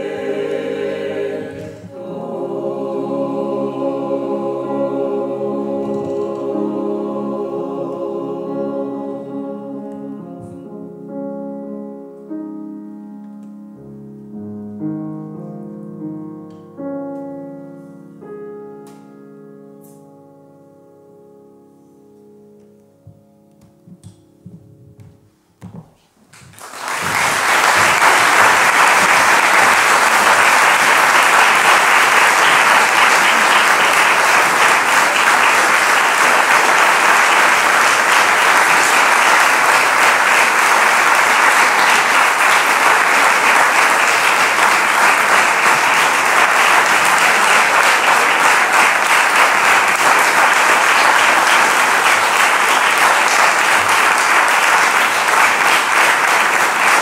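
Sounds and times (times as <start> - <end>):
audience applauding: 26.4 - 57.0.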